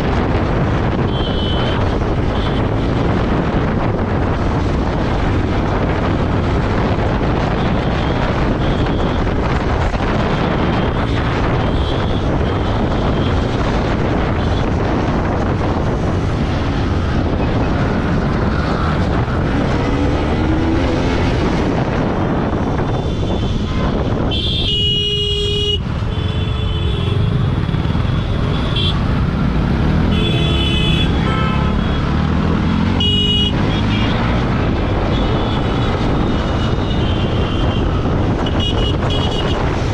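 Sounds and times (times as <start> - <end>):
wind rush: 0.0 - 39.9
vehicle horns honking: 1.0 - 2.7, 22.9 - 27.4, 28.5 - 29.0, 30.1 - 32.1, 32.9 - 34.3, 35.1 - 39.7.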